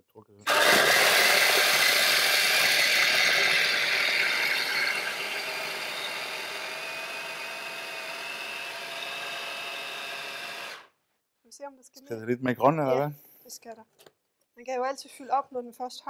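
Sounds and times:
food chopper motor whining: 0.5s - 10.9s.

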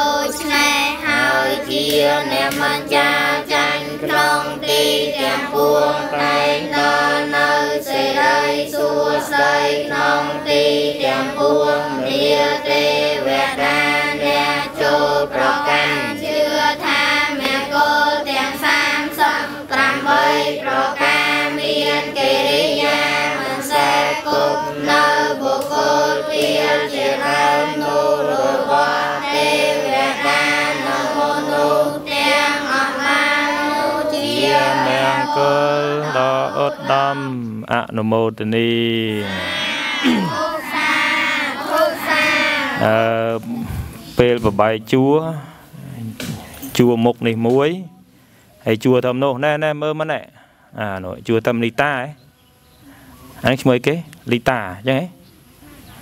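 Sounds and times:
children chanting in unison: 0.0s - 37.6s, 39.1s - 44.2s.

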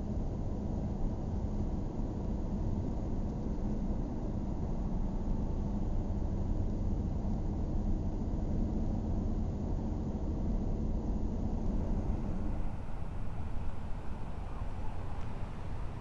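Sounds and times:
faint steady hum: 0.0s - 16.0s
road and engine rumble in car: 7.0s - 16.0s.

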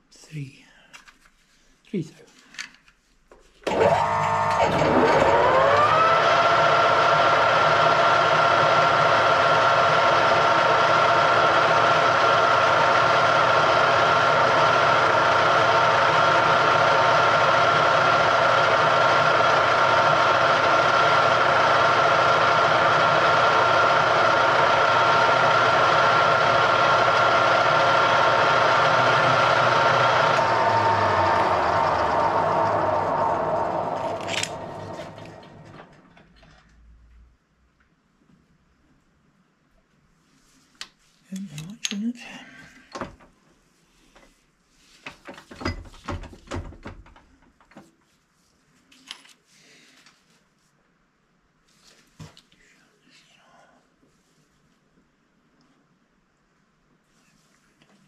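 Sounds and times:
electric motor whining: 3.7s - 36.0s.

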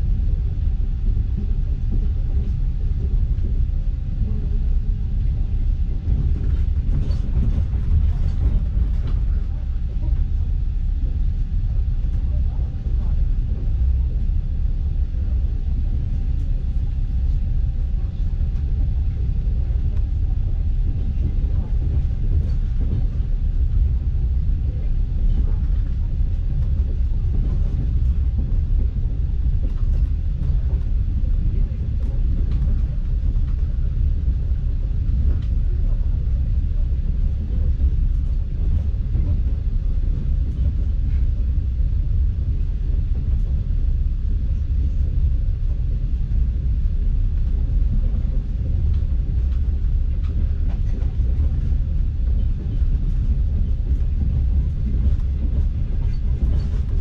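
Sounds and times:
train carriage rumbling: 0.0s - 57.0s.

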